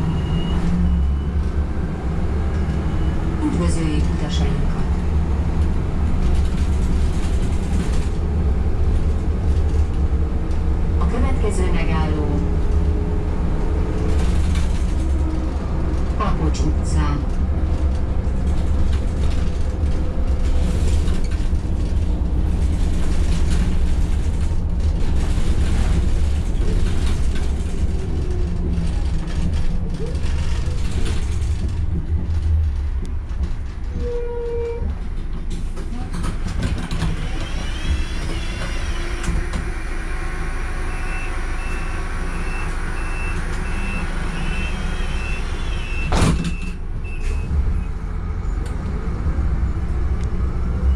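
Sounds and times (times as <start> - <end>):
bus engine and road noise: 0.0 - 50.9
single tone: 0.1 - 1.3, 40.9 - 47.5.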